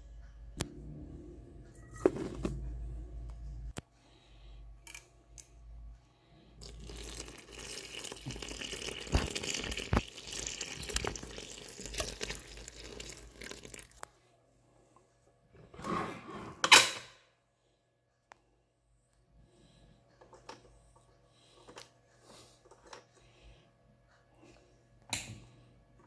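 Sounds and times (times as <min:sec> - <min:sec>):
liquid pouring onto flour: 0:06.6 - 0:14.0.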